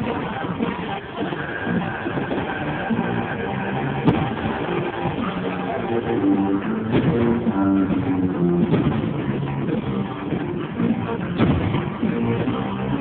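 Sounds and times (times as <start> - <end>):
guitar-driven music: 0.0 - 13.0
firework bangs: 8.6 - 9.8, 11.3 - 12.5.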